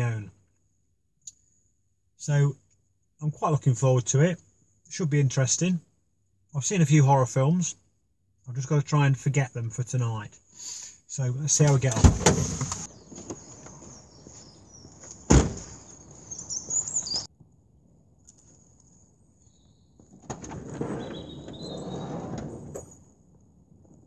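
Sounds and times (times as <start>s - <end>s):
van door shutting: 11.6s - 13.4s, 15.2s - 15.8s
scraping and rustling: 12.1s - 16.3s
birds chirping: 12.8s - 17.3s, 21.0s - 22.2s.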